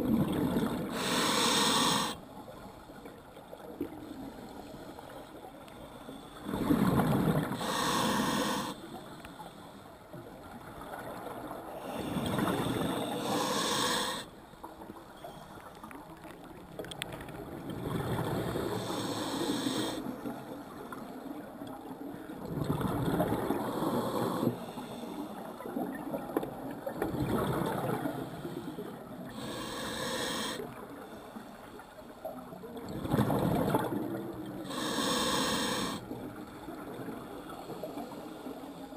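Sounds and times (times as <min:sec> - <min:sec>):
regulator hiss: 0:00.9 - 0:02.2, 0:07.6 - 0:08.8, 0:12.6 - 0:14.2, 0:18.7 - 0:20.0, 0:29.4 - 0:30.6, 0:34.7 - 0:36.0.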